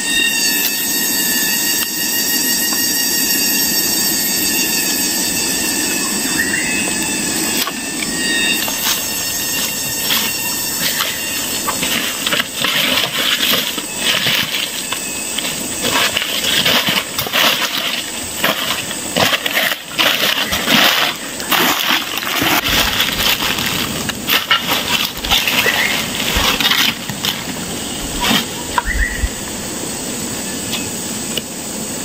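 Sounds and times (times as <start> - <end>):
fire hissing: 4.0 - 32.0
burning branches crackling: 7.0 - 30.1.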